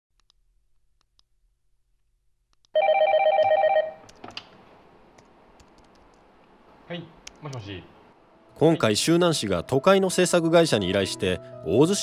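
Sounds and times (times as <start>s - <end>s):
electronic telephone ring: 2.8s - 4.0s.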